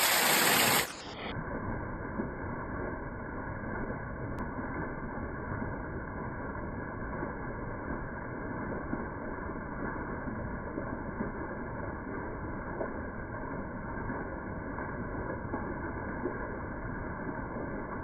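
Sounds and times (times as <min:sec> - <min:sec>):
water cascading over rocks: 0:00.0 - 0:01.3.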